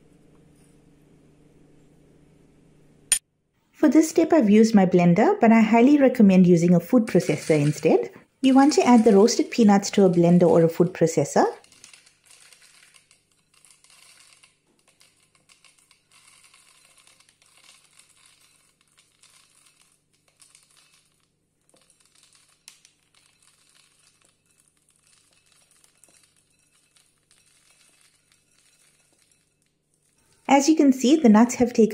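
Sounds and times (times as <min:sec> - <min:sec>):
peanuts poured into plastic cup: 0:06.4 - 0:31.6.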